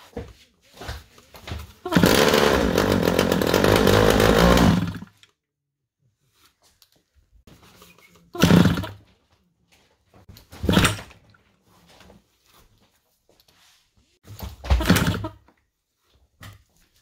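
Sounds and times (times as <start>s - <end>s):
small motorcycle engine running: 1.9s - 5.2s, 8.4s - 9.0s.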